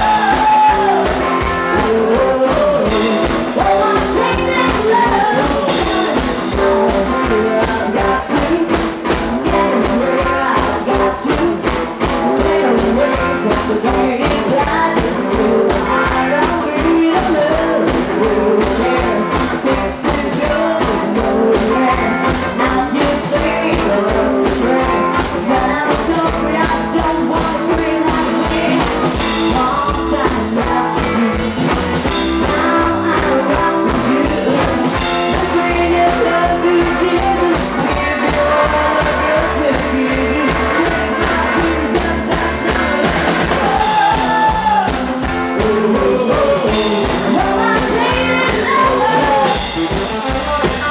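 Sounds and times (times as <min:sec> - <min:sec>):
drum kit: 0:00.0 - 0:50.9
electric guitar: 0:00.0 - 0:50.9
rock and roll band playing: 0:00.0 - 0:50.9
upright double bass: 0:00.0 - 0:50.9
woman singing: 0:00.0 - 0:50.9.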